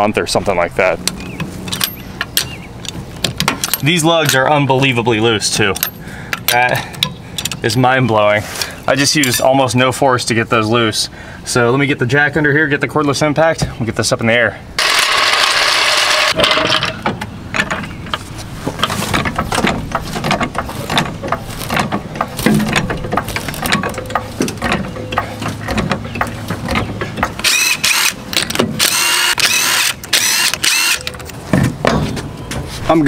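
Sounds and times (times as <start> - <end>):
impact wrench whirring and hammering: 14.8 - 16.4, 25.6 - 31.2
floor jack clicks and clanks: 18.8 - 27.5.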